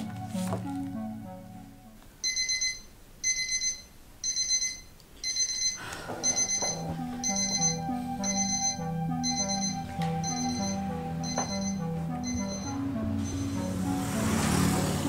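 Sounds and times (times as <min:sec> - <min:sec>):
background music with low notes: 0:00.0 - 0:02.4, 0:06.0 - 0:15.0
alarm clock beeping: 0:02.2 - 0:15.0.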